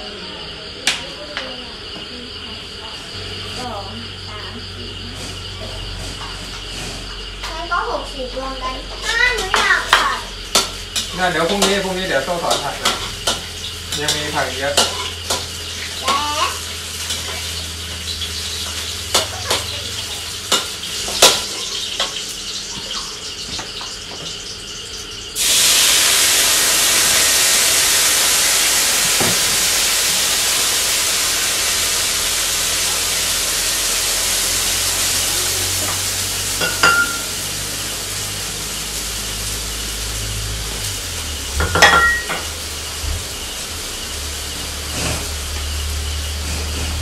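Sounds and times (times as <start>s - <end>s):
loud sizzling and steam hiss: 3.1s - 47.0s
water poured into hot wok: 25.4s - 47.0s.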